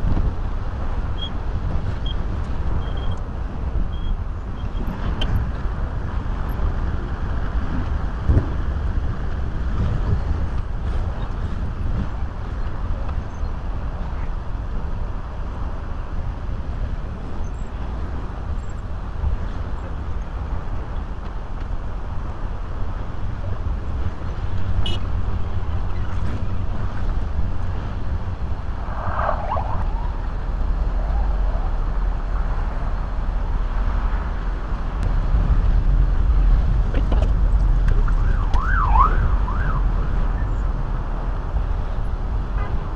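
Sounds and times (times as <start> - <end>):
road traffic rumbling: 0.0 - 42.9.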